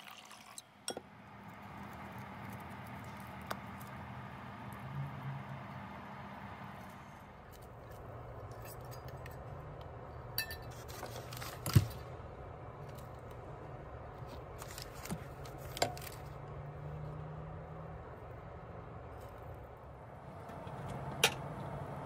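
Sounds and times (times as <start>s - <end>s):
bowl clinking against metal pot: 10.4s - 10.7s.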